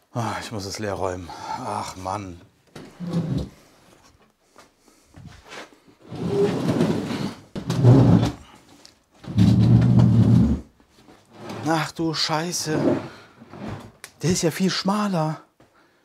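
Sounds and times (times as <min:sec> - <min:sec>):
cabinet scraping across floor: 0:02.8 - 0:03.6, 0:05.5 - 0:08.4, 0:09.2 - 0:12.0, 0:12.6 - 0:14.0.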